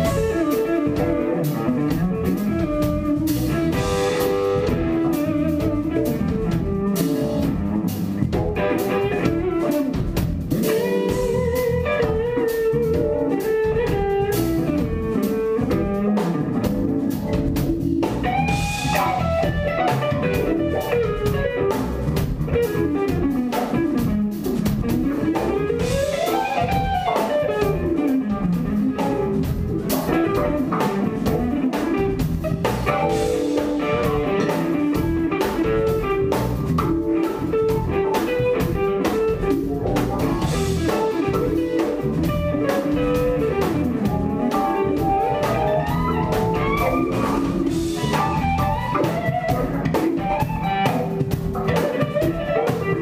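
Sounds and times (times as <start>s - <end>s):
drum kit with cymbals: 0.0s - 53.0s
electric bass: 0.0s - 53.0s
electric guitar runs: 0.0s - 53.0s
keyboards: 0.0s - 53.0s.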